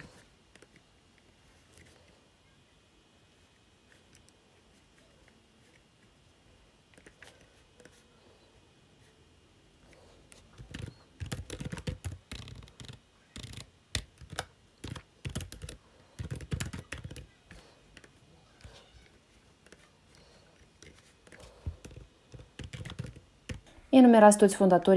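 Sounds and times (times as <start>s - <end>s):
keyboard typing: 10.3s - 18.8s, 19.6s - 23.7s.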